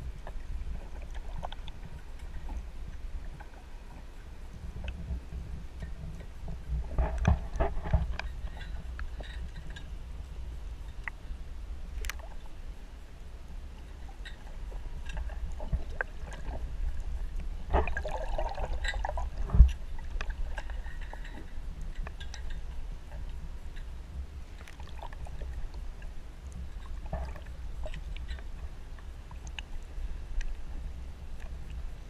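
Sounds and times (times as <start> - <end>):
low rumble of moving water: 0.0 - 32.0
water sloshing: 13.8 - 31.9.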